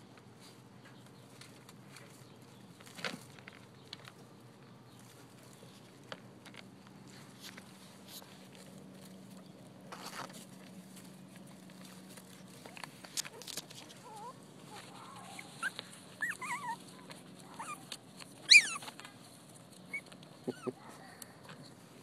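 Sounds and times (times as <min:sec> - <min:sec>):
small clicks and rustles: 0:00.1 - 0:22.0
puppies whimpering: 0:13.3 - 0:19.0, 0:19.7 - 0:21.0
puppy squealing: 0:14.0 - 0:19.0, 0:19.8 - 0:20.8.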